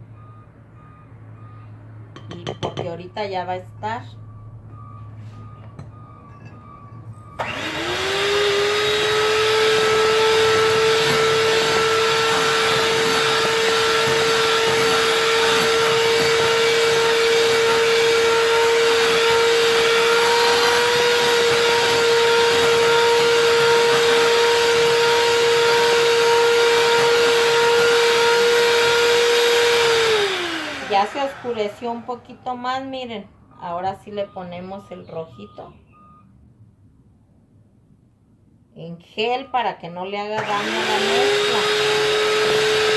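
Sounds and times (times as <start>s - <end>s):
electric hand mixer whirring: 7.4s - 32.6s, 40.4s - 42.9s.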